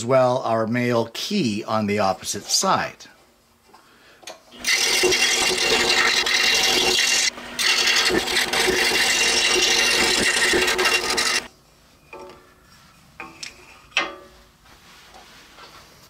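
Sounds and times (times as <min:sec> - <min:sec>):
scroll saw cutting wood: 0:04.6 - 0:11.5.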